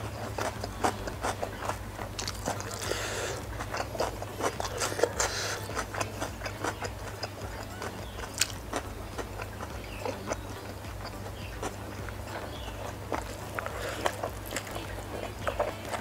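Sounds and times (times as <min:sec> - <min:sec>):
chewing noodles: 0:00.0 - 0:16.0
chopsticks clicking and scraping: 0:00.0 - 0:16.0.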